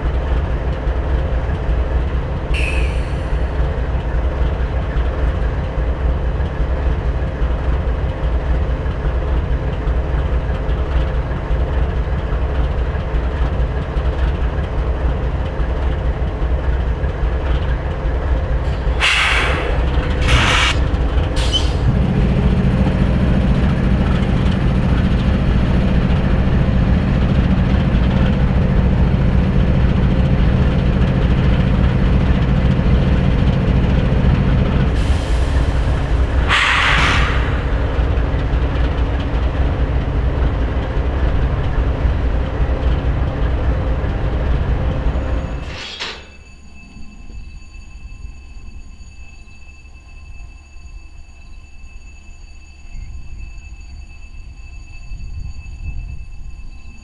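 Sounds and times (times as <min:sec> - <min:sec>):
diesel locomotive idling: 0:00.0 - 0:57.0
brief squeak: 0:02.6 - 0:03.6, 0:18.7 - 0:20.8, 0:21.4 - 0:21.9, 0:35.5 - 0:38.0, 0:45.1 - 0:57.0
air hisses: 0:19.0 - 0:20.8, 0:36.4 - 0:37.7, 0:45.6 - 0:46.3.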